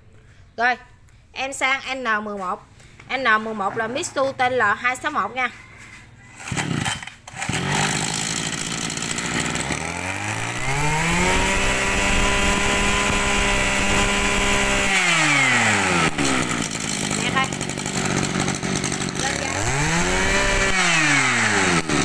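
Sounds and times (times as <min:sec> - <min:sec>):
brush-cutter engine revving: 0:06.3 - 0:22.0.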